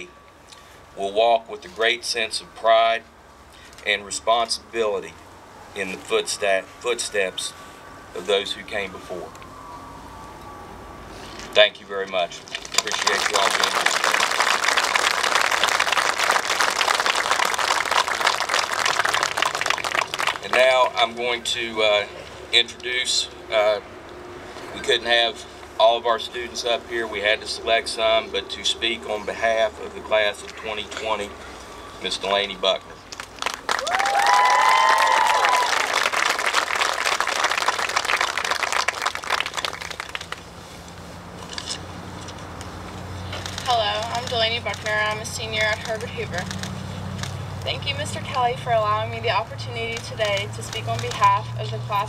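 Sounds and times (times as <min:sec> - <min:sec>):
crowd applauding: 0:12.6 - 0:21.0, 0:33.1 - 0:40.5.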